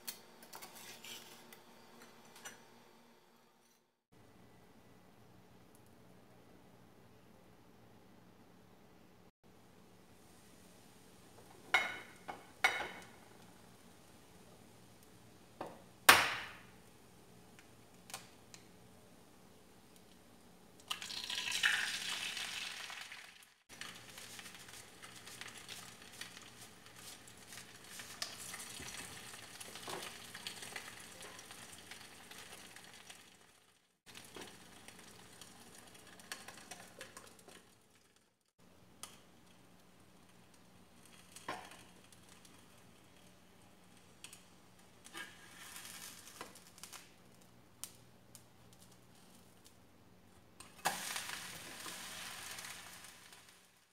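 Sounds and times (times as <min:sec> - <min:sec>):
egg sizzling in a pan: 0:20.8 - 0:38.4, 0:39.0 - 0:47.2, 0:50.6 - 0:53.9
small crackles: 0:22.6 - 0:49.8, 0:50.6 - 0:53.9.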